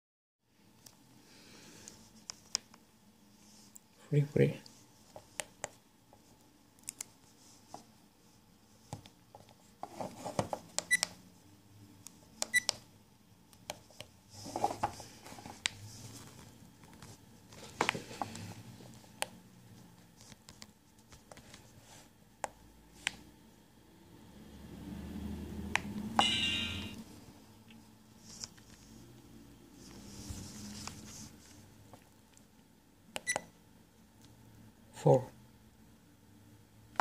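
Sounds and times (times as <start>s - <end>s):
camera beeps: 26.2s - 27.0s.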